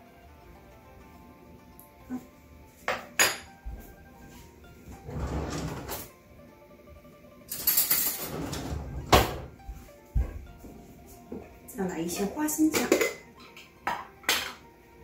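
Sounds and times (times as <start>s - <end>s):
drawer clattering slide: 5.0s - 6.1s, 8.1s - 9.5s
drawer rattling: 5.0s - 6.1s, 8.1s - 9.5s.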